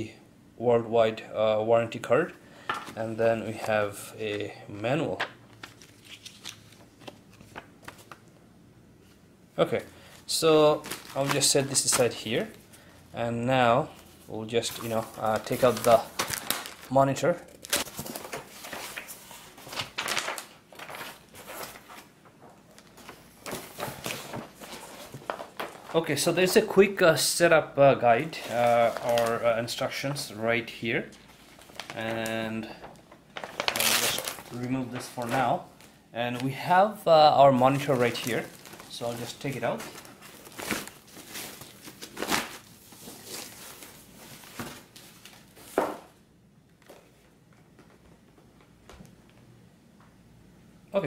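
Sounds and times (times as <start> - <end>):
plastic wrap rustling and crinkling: 5.1 - 8.3, 10.2 - 12.8, 13.9 - 26.8, 28.1 - 30.4, 31.1 - 46.2.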